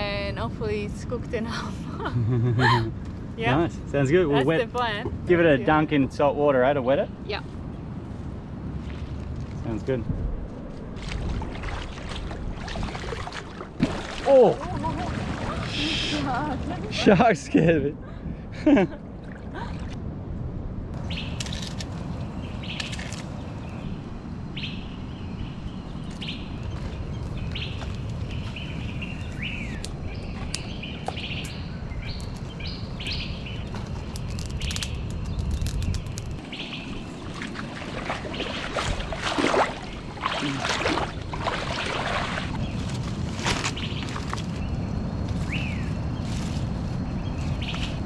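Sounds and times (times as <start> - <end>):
steady low rumble: 0.0 - 48.0
water sloshing and splashing: 10.8 - 17.1, 35.5 - 44.6
small birds chirping: 24.6 - 37.5, 43.7 - 48.0.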